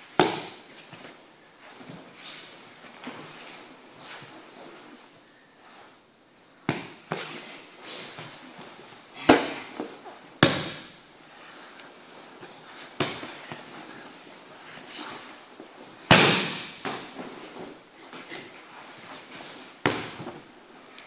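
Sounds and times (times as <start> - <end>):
bodies thudding on foam mats: 0.0 - 4.3, 8.1 - 11.0, 12.4 - 13.7, 15.1 - 20.5.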